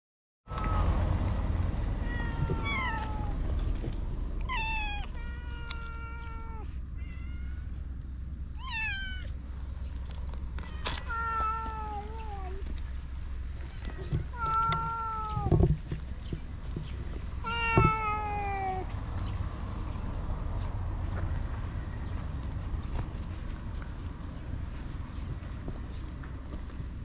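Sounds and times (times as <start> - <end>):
cat meowing: 0.5 - 1.0, 2.0 - 3.5, 4.4 - 7.7, 8.6 - 9.3, 10.6 - 12.7, 13.7 - 15.6, 17.4 - 18.9
low rumble: 0.5 - 17.5.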